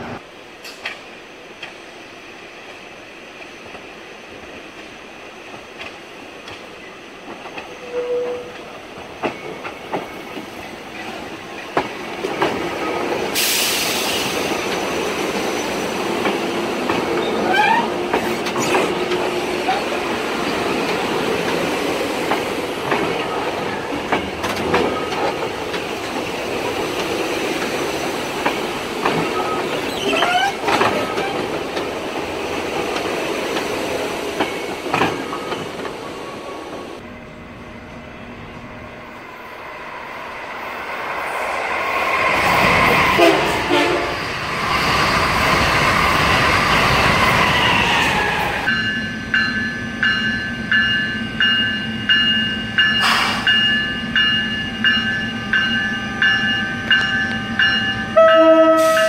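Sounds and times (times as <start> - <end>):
train wheels clicking over rail joints: 0.6 - 1.9, 8.5 - 15.1, 15.9 - 36.1
air hiss burst: 13.4 - 14.6
wheel squeals: 29.2 - 31.5.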